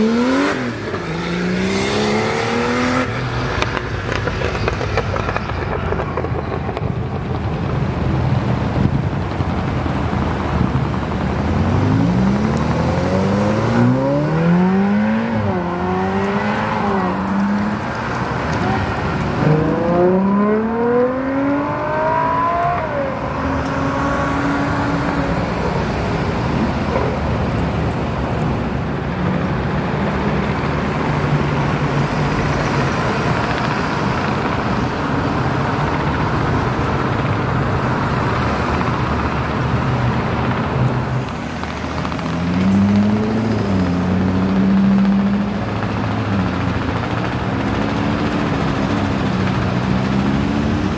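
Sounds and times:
sports car engine accelerating: 0.0s - 7.5s, 11.5s - 27.7s, 35.7s - 50.9s
road noise: 0.0s - 50.9s.

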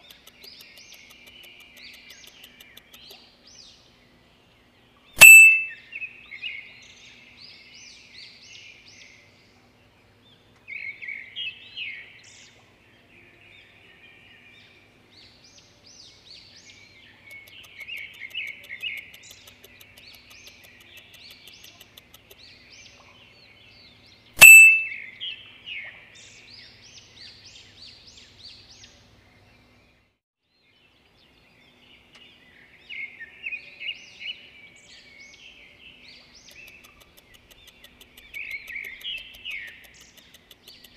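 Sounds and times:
small birds chirping: 0.0s - 40.9s
sharp ding: 5.2s - 5.8s, 24.4s - 25.0s.

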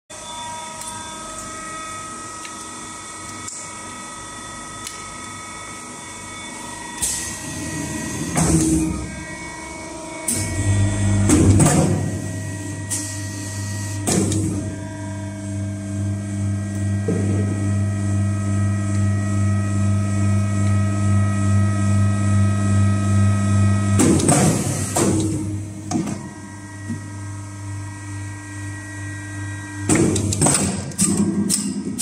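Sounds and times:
machine high whine: 0.1s - 31.8s
deep steady hum: 7.1s - 30.4s.

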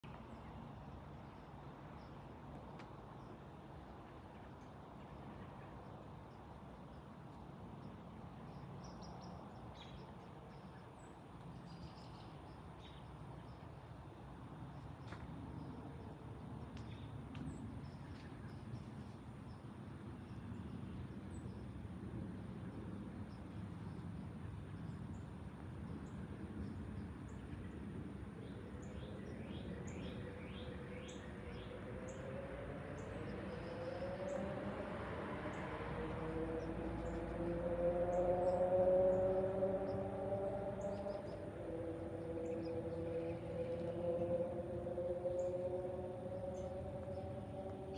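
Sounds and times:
jet airliner rumble overhead: 9.4s - 47.9s.

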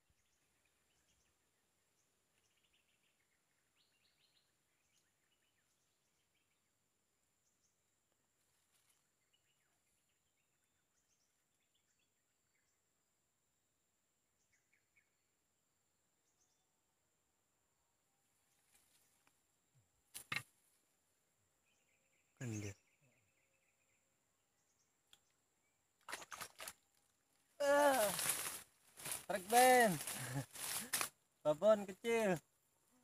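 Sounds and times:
faint bird chirps: 0.0s - 13.0s, 21.5s - 25.9s.

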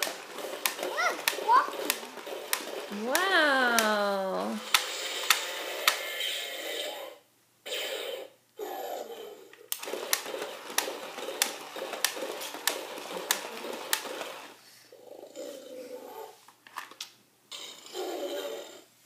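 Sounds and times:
sharp clicks of toy legs stepping: 0.0s - 4.0s, 4.6s - 6.0s, 9.7s - 14.5s
toy motor and gears whirring: 0.0s - 4.0s, 8.6s - 14.6s.

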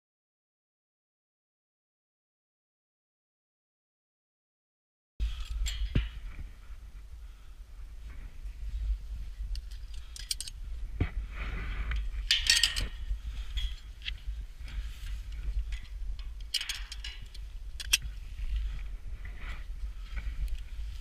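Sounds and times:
wind buffeting microphone: 5.2s - 21.0s
gear clinking on steel: 5.3s - 6.2s, 9.5s - 10.6s, 12.0s - 14.2s, 15.0s - 18.1s.

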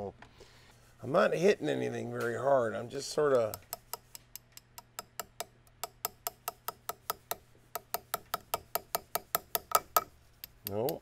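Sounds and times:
rapid hammer taps on metal punch: 3.3s - 11.0s.

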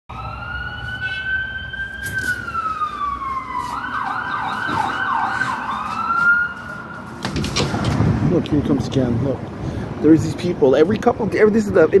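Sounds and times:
siren wailing and yelping: 0.1s - 7.2s.

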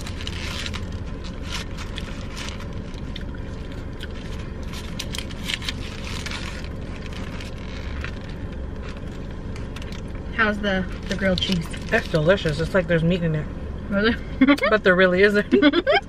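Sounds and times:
chewing food: 0.0s - 10.2s
paper wrapper crackling: 0.0s - 10.2s
low hum inside car: 0.0s - 16.0s.

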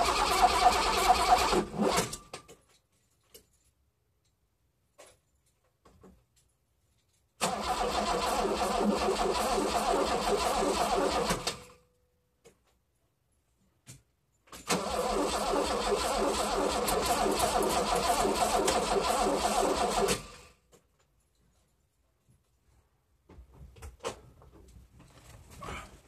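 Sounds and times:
engine cranking on starter: 0.0s - 2.2s, 7.4s - 11.8s, 14.6s - 20.5s.

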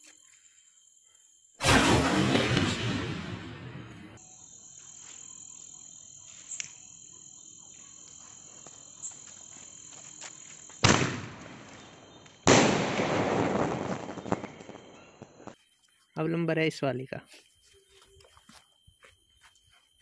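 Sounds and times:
firework bangs: 1.6s - 4.2s, 10.8s - 15.6s
firework fuse hissing: 1.6s - 4.2s
crackling firework stars: 1.6s - 5.4s, 8.0s - 15.6s.

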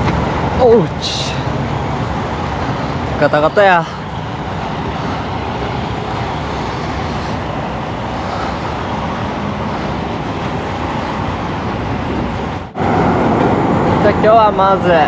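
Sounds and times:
wind noise on microphone: 4.4s - 15.0s.

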